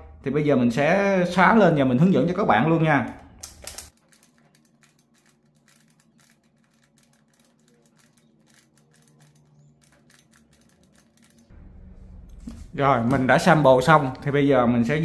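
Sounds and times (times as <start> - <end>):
plastic puzzle pieces clicking: 3.4 - 11.5.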